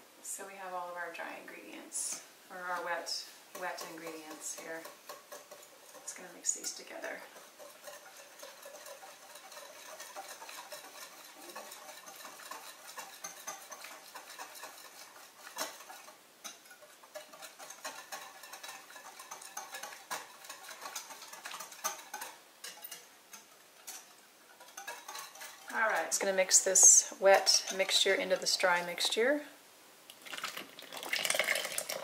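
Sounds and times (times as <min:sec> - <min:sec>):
whisk ticking against glass bowl: 0:02.6 - 0:29.2
whisk knocking on bowl: 0:03.5 - 0:23.0.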